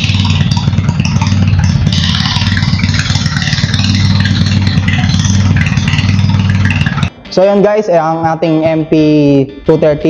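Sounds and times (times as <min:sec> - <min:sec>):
engine droning: 0:00.0 - 0:07.3.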